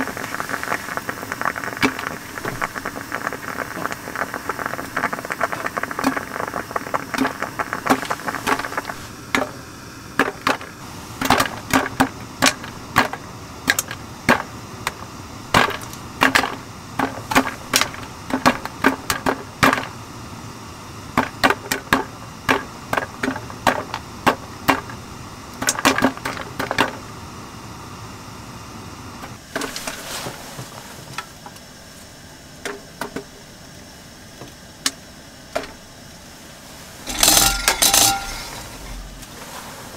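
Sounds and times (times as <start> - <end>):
metal tin crackling on stove: 0.0 - 9.6, 10.2 - 20.0, 37.0 - 39.4
short rustle: 29.7 - 31.1.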